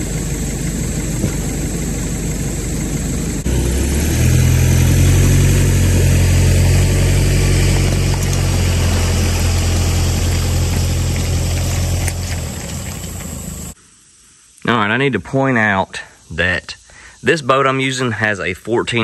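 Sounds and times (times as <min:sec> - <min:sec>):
pickup truck engine pulling load: 0:00.0 - 0:13.8.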